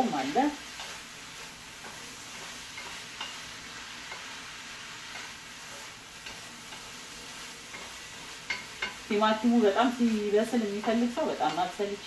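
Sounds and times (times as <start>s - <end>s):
meat sizzling in frying pan: 0.0s - 12.0s
utensil clicking against pan: 1.8s - 3.4s, 4.1s - 4.3s, 5.1s - 5.4s, 6.2s - 7.0s, 7.7s - 9.1s.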